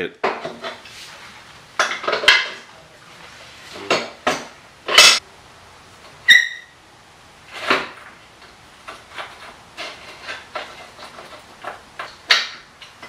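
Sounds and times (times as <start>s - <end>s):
metal tools clanking: 3.8s - 5.2s.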